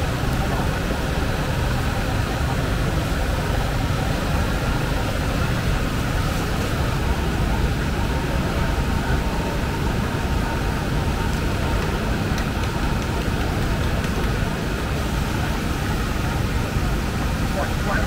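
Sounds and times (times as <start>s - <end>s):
faint crowd voices: 0.0s - 18.0s.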